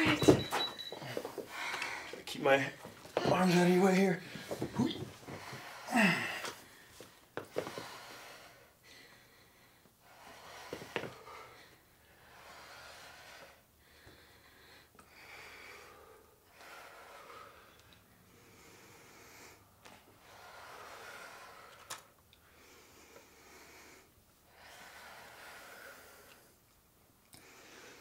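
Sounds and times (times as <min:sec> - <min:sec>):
people breathing heavily: 0:00.0 - 0:26.7, 0:27.4 - 0:28.0.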